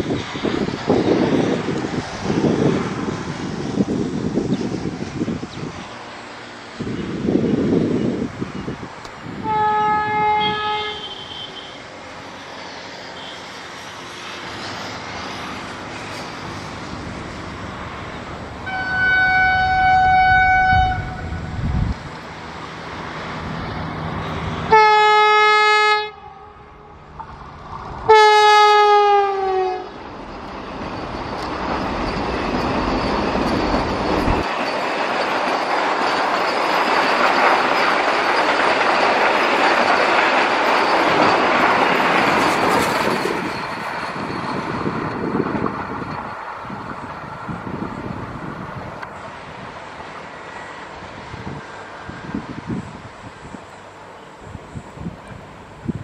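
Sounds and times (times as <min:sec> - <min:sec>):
train coaches rattling past: 0:00.0 - 0:56.0
train horn blasts: 0:09.4 - 0:11.8, 0:13.2 - 0:13.5, 0:18.6 - 0:21.6, 0:24.7 - 0:27.0, 0:28.1 - 0:30.0.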